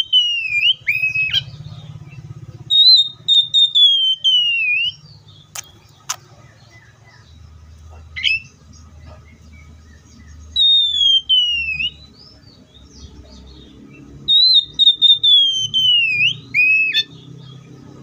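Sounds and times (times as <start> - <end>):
bird singing whistled phrases: 0.0 - 5.6, 10.0 - 12.4, 14.2 - 17.3.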